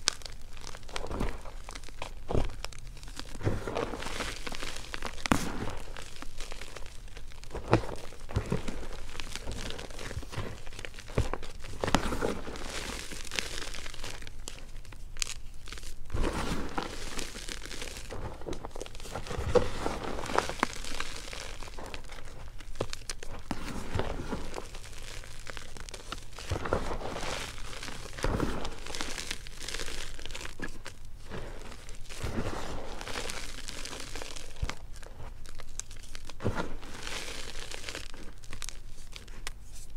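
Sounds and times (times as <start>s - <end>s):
fingers crunching powder: 0.0s - 39.9s.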